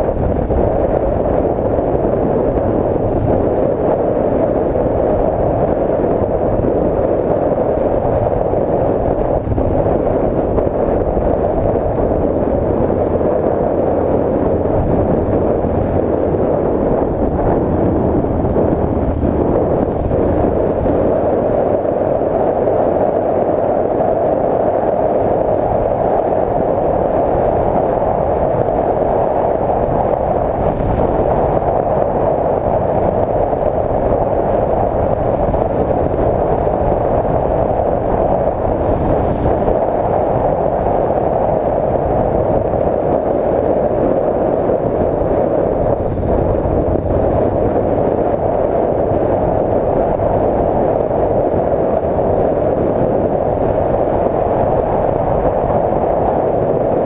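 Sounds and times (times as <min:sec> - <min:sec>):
wind noise: 0:00.0 - 0:57.0.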